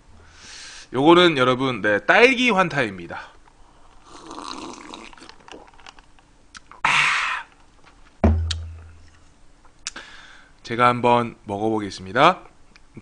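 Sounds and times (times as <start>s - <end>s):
loud breathy exhale: 0.2s - 0.9s, 10.0s - 10.5s
person gulping a drink: 4.0s - 6.0s
sharp thud: 8.2s - 9.0s.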